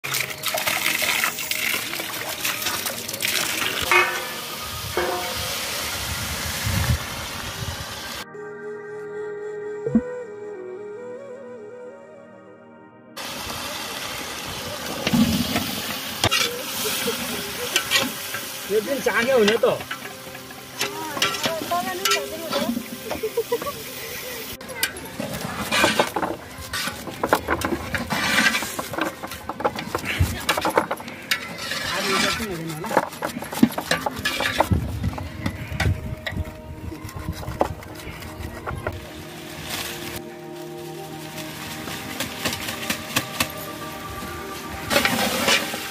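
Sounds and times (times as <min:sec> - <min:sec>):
water splashing in a basin: 0:00.0 - 0:04.4
soft music: 0:00.0 - 0:45.9
leaves rustling: 0:01.0 - 0:08.2, 0:13.2 - 0:45.9
rough noise: 0:24.6 - 0:45.9.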